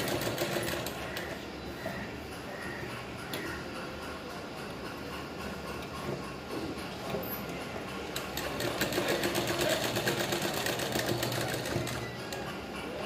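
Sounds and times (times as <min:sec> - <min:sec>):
sewing machine stitching: 0:00.0 - 0:01.3, 0:08.1 - 0:12.4.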